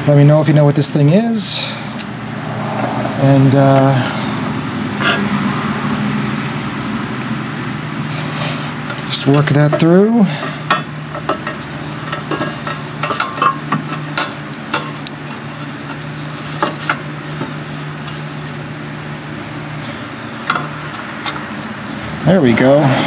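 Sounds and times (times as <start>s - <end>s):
steady low hum: 0.0s - 23.0s
hands working rubber hose: 7.8s - 22.9s.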